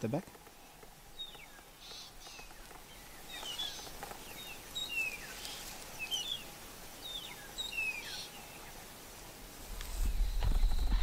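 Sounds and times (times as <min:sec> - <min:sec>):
faint bush ambience hiss: 0:00.0 - 0:11.0
birds whistling falling notes: 0:01.1 - 0:08.8, 0:09.9 - 0:11.0.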